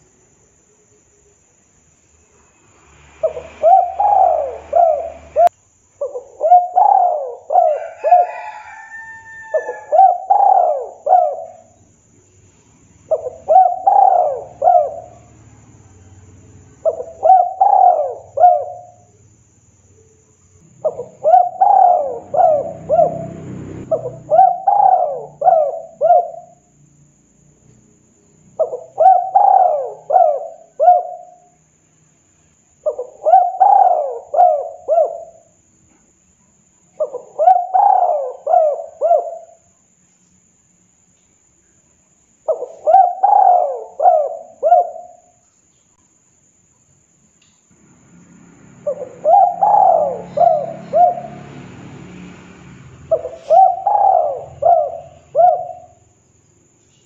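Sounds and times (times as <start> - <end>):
dove cooing: 3.2 - 11.8, 13.1 - 15.4, 16.8 - 19.1, 20.7 - 26.7, 28.5 - 31.5, 32.8 - 35.6, 37.0 - 39.7, 42.4 - 45.4, 48.8 - 51.6, 53.1 - 56.1.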